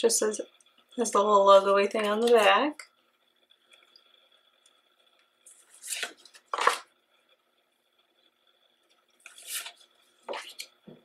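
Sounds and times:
paper card slides and taps: 5.5 - 6.9, 9.3 - 10.7
photo cards being shuffled: 5.5 - 6.9, 9.2 - 10.7.

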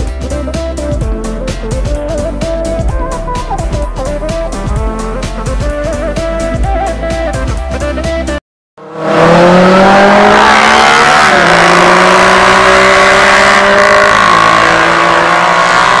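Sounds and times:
motorcycle engine revving: 8.8 - 16.0.

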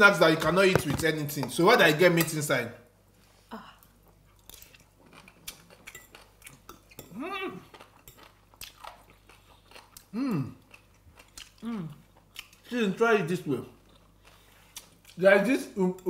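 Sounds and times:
people chewing food: 3.3 - 15.2.

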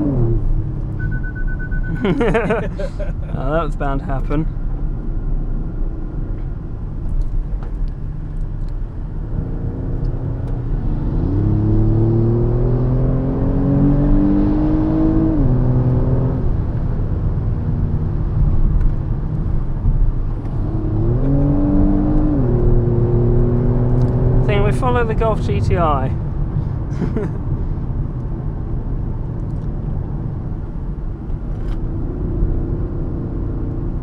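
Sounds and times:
road and tyre rumble: 0.0 - 34.0
car engine accelerating: 7.1 - 34.0.

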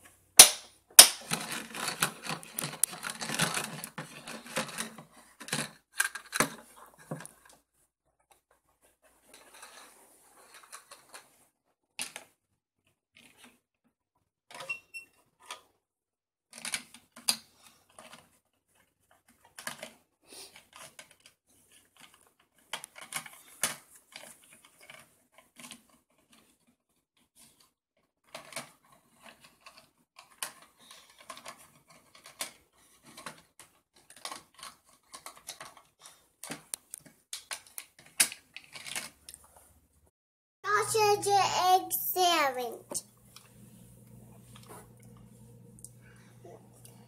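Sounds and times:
plastic toys clattering: 1.0 - 7.6, 9.2 - 11.4, 16.6 - 26.6, 27.4 - 39.6.

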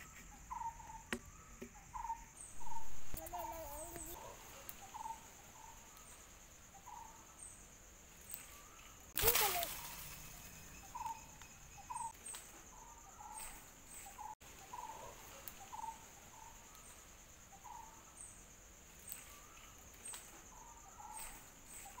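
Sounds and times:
high-pitched insect drone: 2.0 - 6.2, 8.3 - 12.2.

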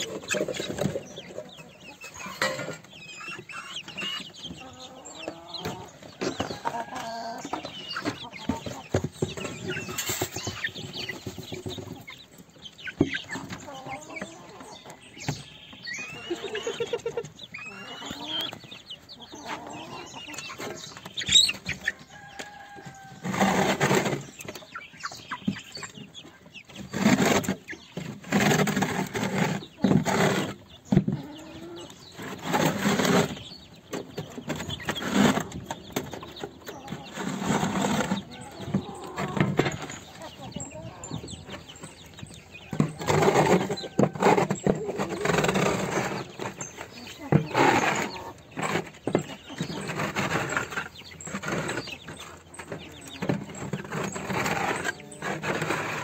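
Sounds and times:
young cockerels peeping: 0.0 - 56.0.

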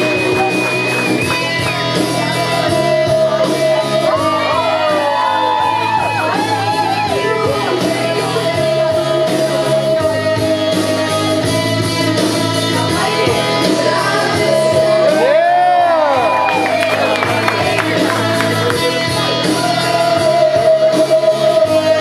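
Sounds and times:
loud music with singing: 0.0 - 22.0
whooping voices: 3.8 - 7.8, 14.2 - 18.7
people shouting: 14.9 - 17.2.

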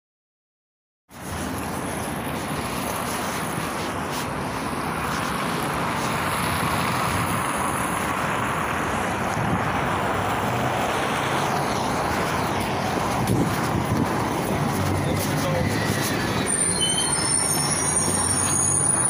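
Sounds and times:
bus pulling up: 1.1 - 19.0
road traffic noise: 1.1 - 19.0
wind on microphone: 9.0 - 18.5.

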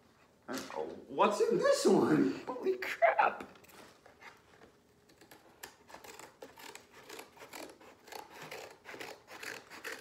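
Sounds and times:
blade scraping cardboard: 5.1 - 10.0.

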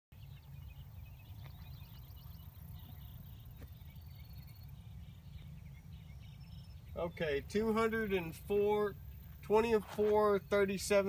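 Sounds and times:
high bird chirps: 0.2 - 10.6.

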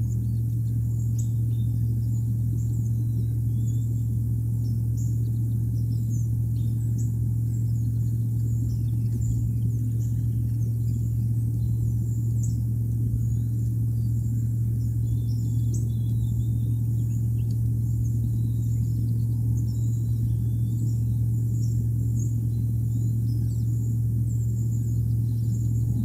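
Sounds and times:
steady low hum: 0.0 - 26.0
low rumble: 23.8 - 26.0.

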